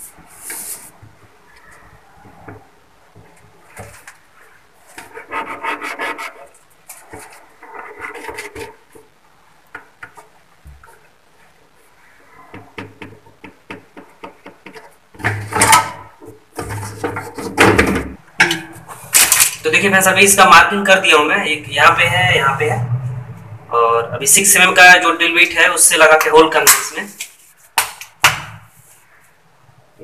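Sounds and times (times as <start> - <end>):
marker pen rubbing on tile: 4.9 - 8.8
plastic knocks and clatter: 12.5 - 19.5.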